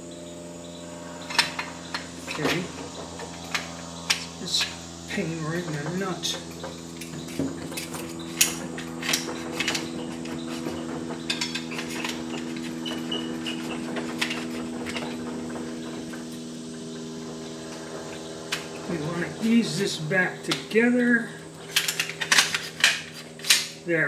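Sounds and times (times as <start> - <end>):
steady hum: 0.0 - 24.0
metal gun parts scraping: 21.7 - 23.7.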